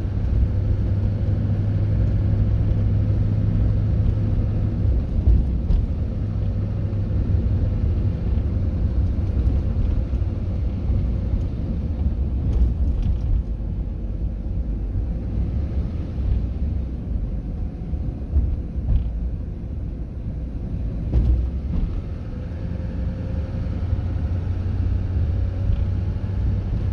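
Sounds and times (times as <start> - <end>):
car road and engine rumble: 0.0 - 26.9
thump: 21.1 - 22.0.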